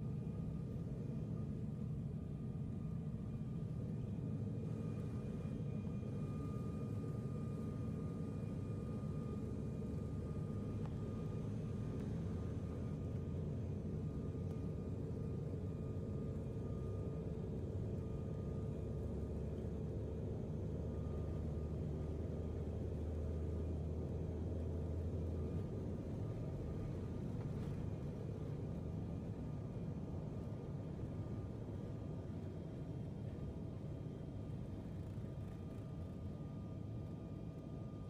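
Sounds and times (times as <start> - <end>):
faint steady whine: 0.0 - 38.0
airliner cabin rumble: 24.0 - 36.6.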